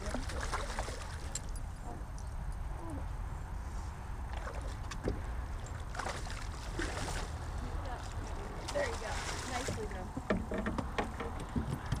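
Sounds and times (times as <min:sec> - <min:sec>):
fish splashing at water surface: 0:00.0 - 0:01.5.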